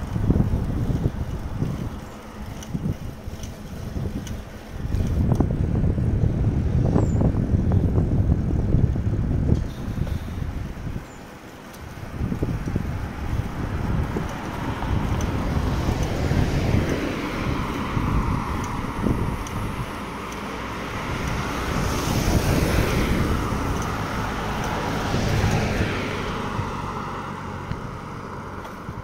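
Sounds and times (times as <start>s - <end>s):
wind rumbling on microphone: 0.0s - 29.0s
cars driving past: 9.6s - 29.0s.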